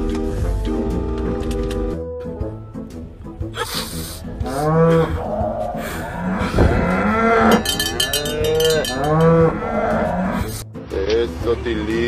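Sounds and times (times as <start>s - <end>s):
cattle mooing: 4.4s - 10.6s.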